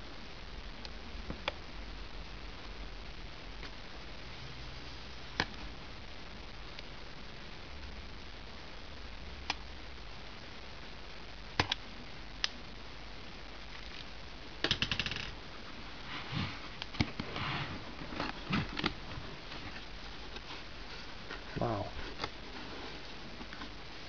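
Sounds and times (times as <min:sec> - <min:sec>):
cardboard scraping and rustling: 0:16.0 - 0:23.8.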